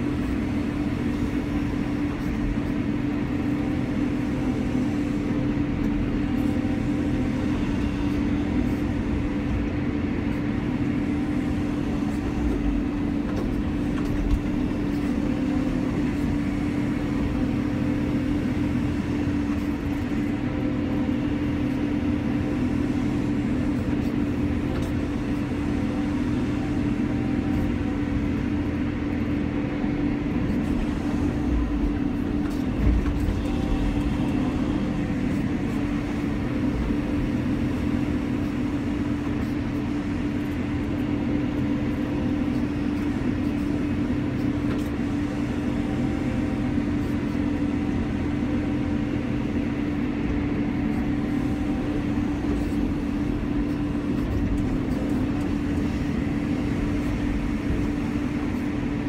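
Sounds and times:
excavator diesel engine running: 0.0s - 59.0s.

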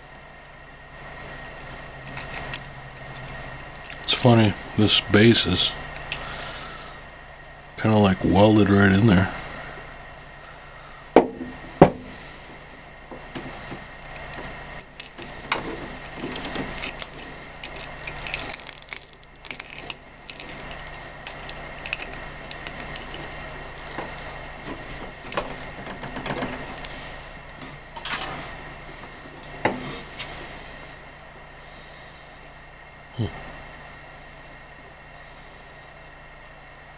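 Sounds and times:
small clicks scrapes and rattles: 0.4s - 4.9s, 5.9s - 6.9s, 13.8s - 27.0s.

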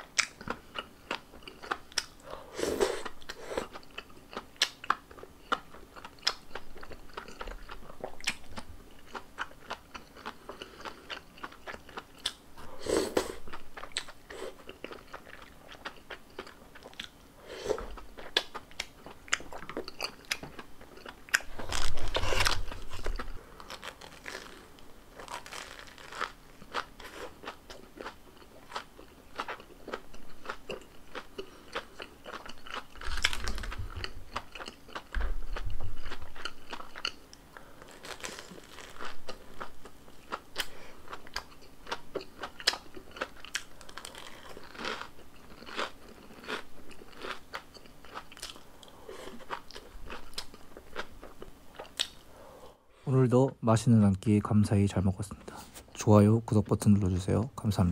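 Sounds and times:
wet chewing: 13.0s - 52.3s
crunching bites: 17.8s - 37.2s, 37.8s - 48.6s.

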